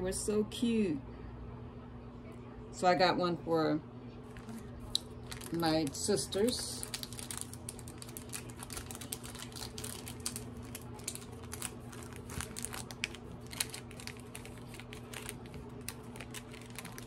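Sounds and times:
steady low hum: 0.0 - 17.0
plastic bags crinkling: 4.3 - 17.0.

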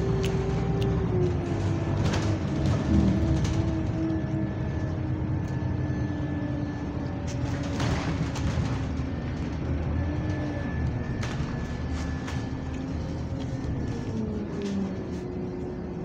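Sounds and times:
bus engine drone: 0.0 - 16.0
thin wavering whine: 2.8 - 8.1, 8.7 - 16.0.

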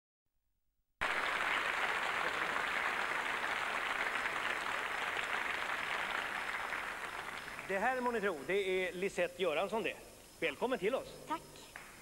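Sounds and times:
audience applauding: 1.0 - 8.2.

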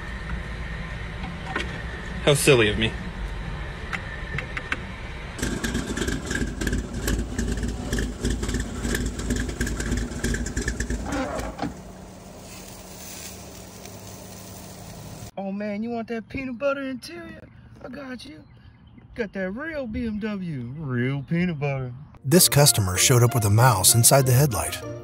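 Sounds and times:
engine running through open headers: 5.4 - 15.3.

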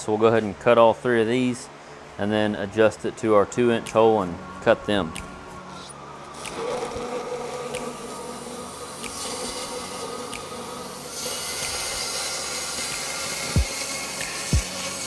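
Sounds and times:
cutting torch hissing: 6.3 - 15.0.

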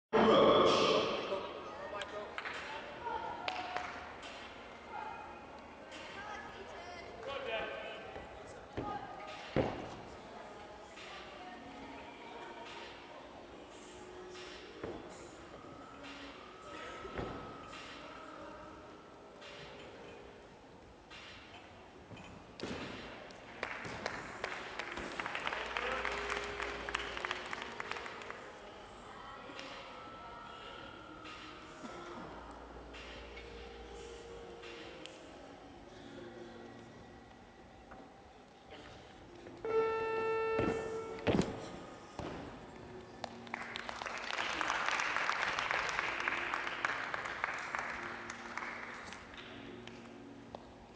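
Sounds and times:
audience applause: 23.6 - 28.3, 43.5 - 49.0.

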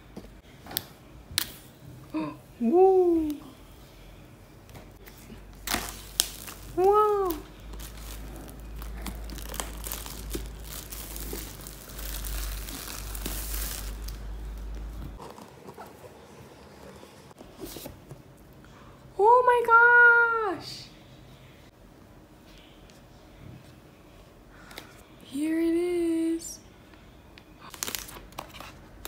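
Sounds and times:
packaging rustling and crinkling: 5.5 - 16.4, 27.7 - 29.0.

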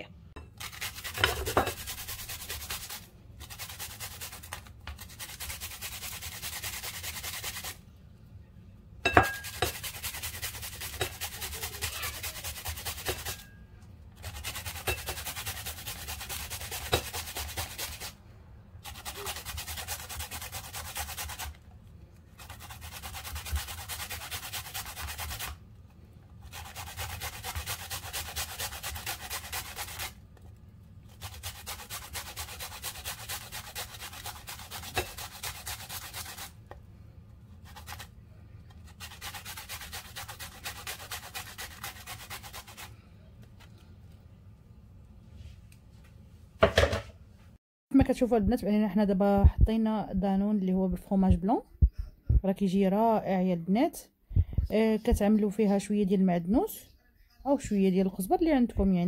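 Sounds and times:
cucumber rasping on grater: 0.6 - 7.8, 9.4 - 13.5, 14.2 - 18.2, 18.8 - 21.6, 22.4 - 25.6, 26.4 - 36.7, 37.6 - 38.1, 38.7 - 42.9.

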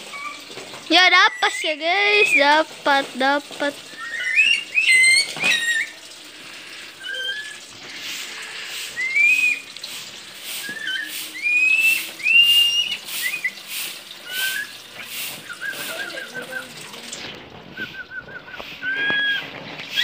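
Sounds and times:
birds whistling: 1.2 - 2.6, 3.8 - 6.1, 7.0 - 7.6, 8.9 - 9.8, 10.5 - 16.8, 17.7 - 20.0.

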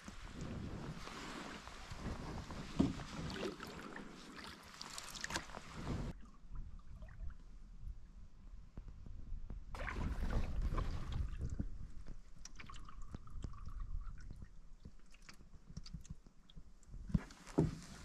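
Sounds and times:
paddle splashing water: 0.0 - 6.8, 9.8 - 15.2.

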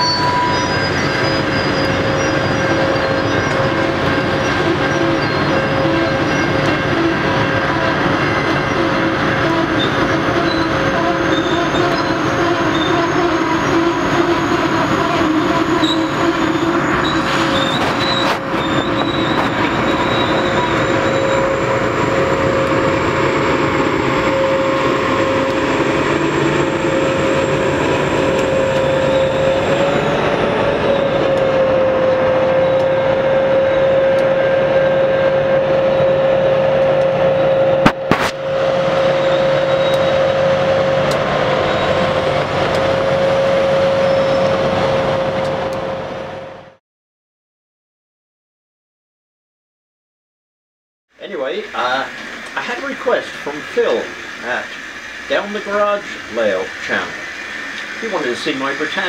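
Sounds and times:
whining squeal: 0.0 - 46.7, 51.5 - 59.0
train wheels rumbling on rails: 0.0 - 46.8, 51.6 - 59.0
sharp bang: 37.8 - 38.4.

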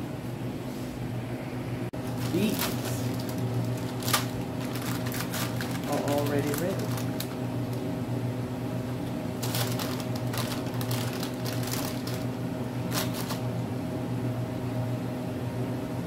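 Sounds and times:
steady low hum: 0.0 - 16.0
paper crinkling and rustling: 2.0 - 7.8, 9.4 - 13.4.

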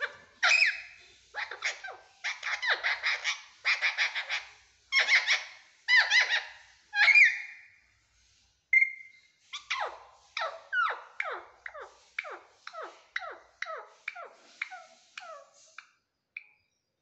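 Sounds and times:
parakeet chattering calls: 0.0 - 7.5, 8.8 - 15.9
parakeet squawks: 0.0 - 7.5.

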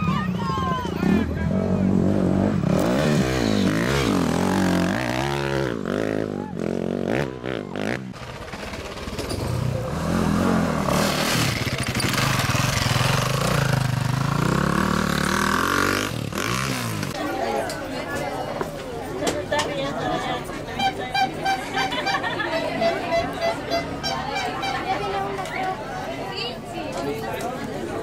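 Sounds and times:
dirt bike engines revving: 0.0 - 17.6.

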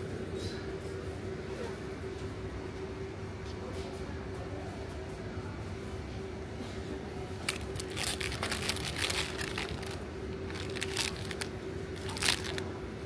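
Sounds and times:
steady low hum: 0.0 - 13.0
crinkling and clicking: 7.5 - 12.6.

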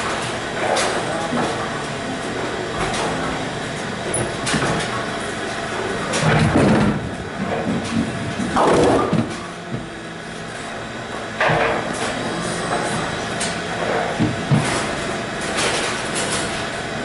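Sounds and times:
pinsetter machinery working: 0.0 - 17.0
bowling balls and pins clattering: 5.8 - 10.0, 11.2 - 16.7.

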